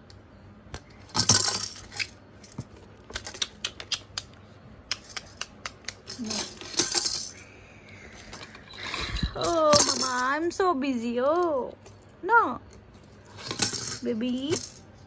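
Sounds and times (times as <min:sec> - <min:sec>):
scraping handling noise: 0:00.8 - 0:03.4, 0:06.0 - 0:07.4, 0:08.0 - 0:10.4, 0:12.6 - 0:15.0.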